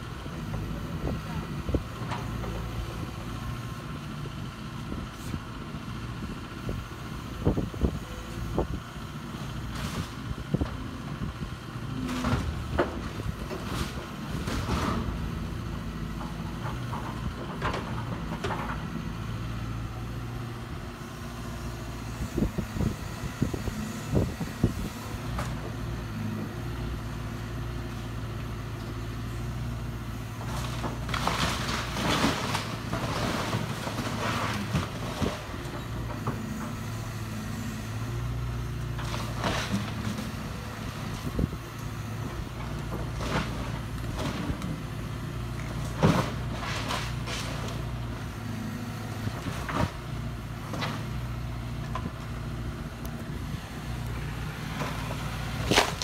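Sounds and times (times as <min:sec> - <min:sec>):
excavator diesel engine running: 0:00.0 - 0:56.0
wood cracking and crunching: 0:30.4 - 0:36.3, 0:45.5 - 0:47.9, 0:53.0 - 0:56.0.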